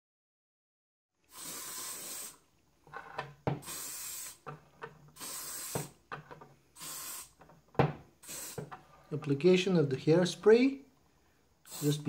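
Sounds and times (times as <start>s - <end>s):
aerosol can spraying: 1.3s - 2.4s, 3.5s - 6.0s, 6.7s - 7.5s, 8.2s - 8.8s, 11.7s - 12.0s.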